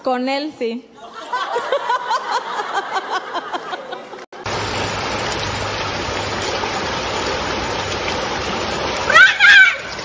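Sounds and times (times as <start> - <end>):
laughter: 1.0 - 4.4
heavy rain: 4.4 - 10.0
water running over street: 4.4 - 10.0.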